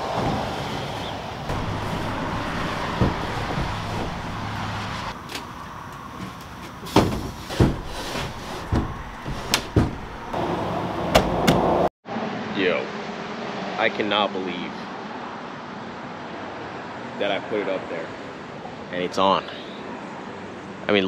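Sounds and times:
metal box knocking and clunking: 8.6s - 10.3s.

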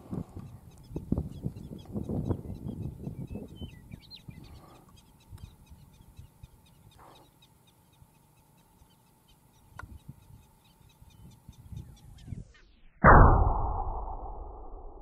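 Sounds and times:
wind rumble on microphone: 0.0s - 6.6s, 9.7s - 12.6s
faint bird chirps: 0.4s - 13.1s.

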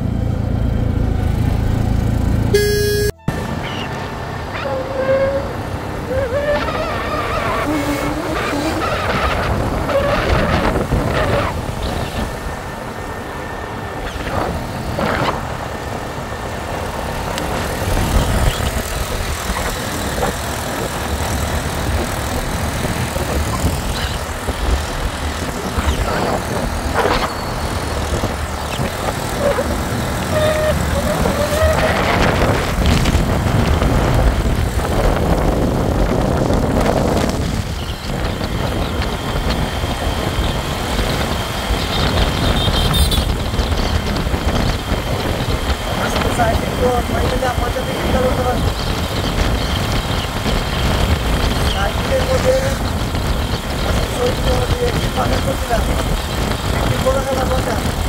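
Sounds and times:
auto-rickshaw engine and road noise: 0.0s - 58.0s
wind rushing: 7.6s - 47.9s.

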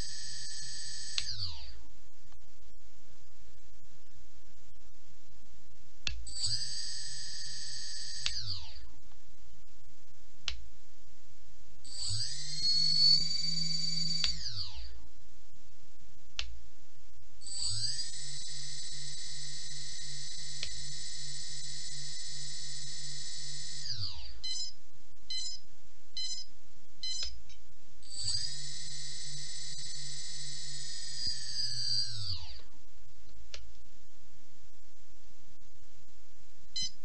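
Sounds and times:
quadcopter motors whining: 11.9s - 14.9s, 17.4s - 24.4s, 28.1s - 32.6s
short beeps: 24.4s - 25.6s, 26.2s - 32.1s.

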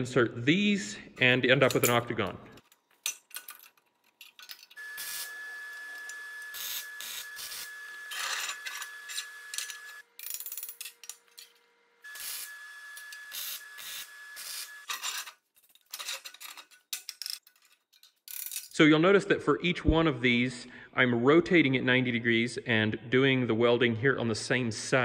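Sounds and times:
welding arc hissing: 4.8s - 10.0s, 12.1s - 14.9s
steel tubes clanking and scraping: 14.9s - 18.6s.

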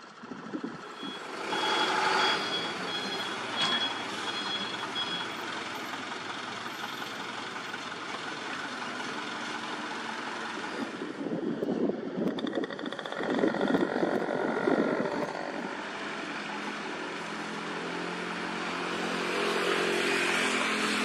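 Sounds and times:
dump truck engine running: 0.0s - 19.1s
reversing alarm beeps: 0.9s - 5.9s
rush of noise: 10.5s - 17.1s.

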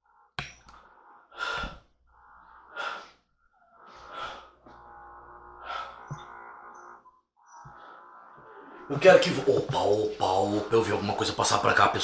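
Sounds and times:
heavy breathing: 0.0s - 6.7s, 7.4s - 8.9s
steady hum: 3.8s - 12.0s.

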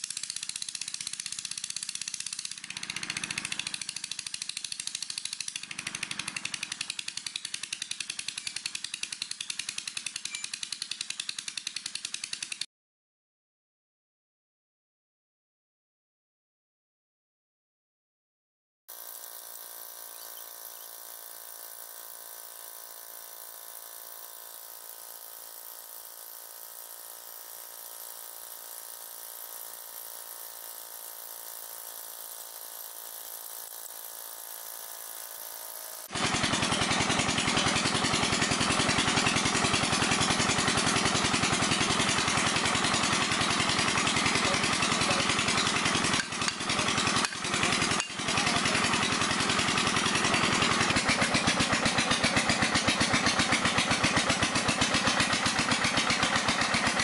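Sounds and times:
diesel engine running: 36.1s - 57.0s.

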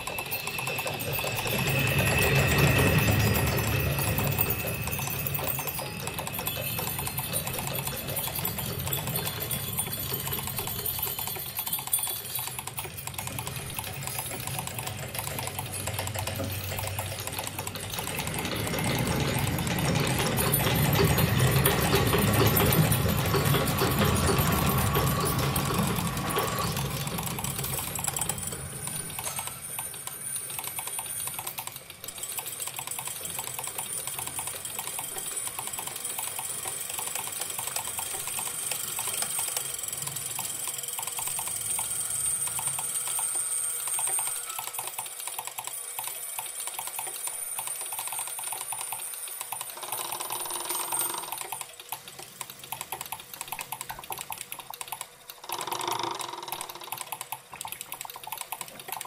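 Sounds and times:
thin high whine: 0.0s - 12.8s
relays and motors clicking: 0.0s - 59.0s.

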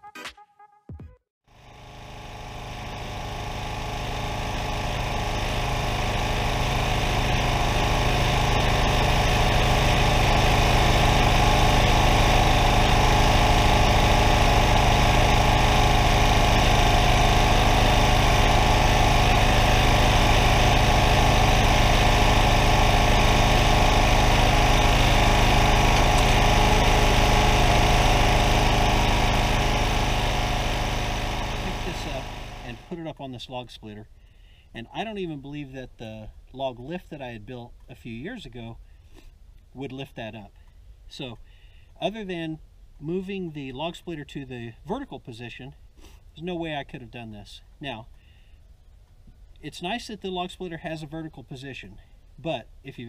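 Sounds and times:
small gas engine: 1.5s - 33.0s
tractor engine running: 1.6s - 33.0s.

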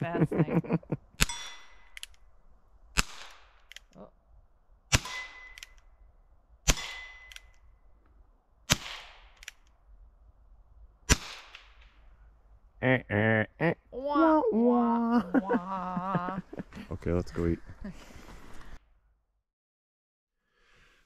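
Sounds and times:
steel target ringing: 6.7s - 7.4s.

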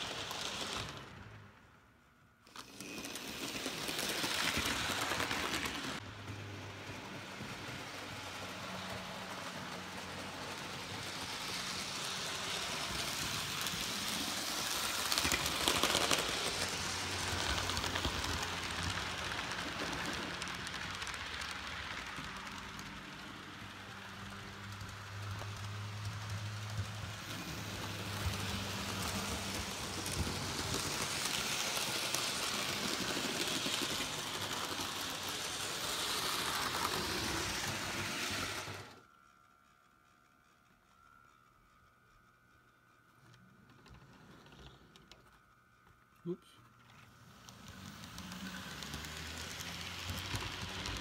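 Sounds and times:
model train wheels rattling: 2.4s - 51.0s
low electric motor hum: 4.4s - 51.0s.

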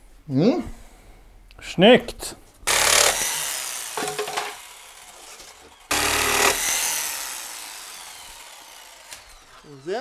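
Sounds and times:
jigsaw cutting board: 2.7s - 10.0s.

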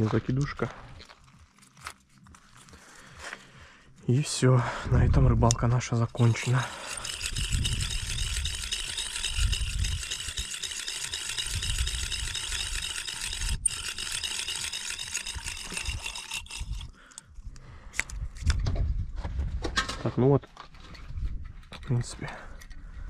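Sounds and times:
fishing reel rattling tick: 5.4s - 17.0s.

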